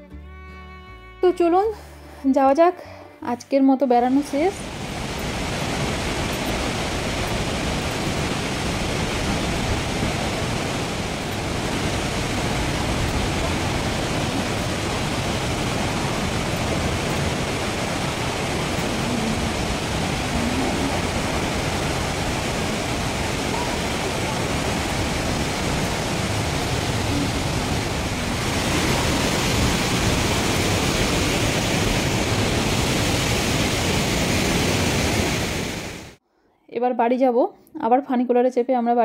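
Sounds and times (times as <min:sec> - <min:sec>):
waterfall rushing: 0:04.1 - 0:36.2.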